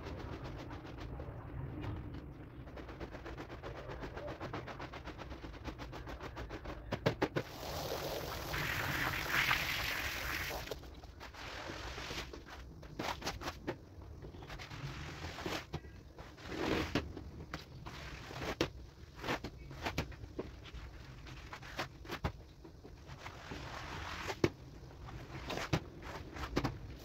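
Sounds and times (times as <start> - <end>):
low steady rumble: 0.0 - 9.3.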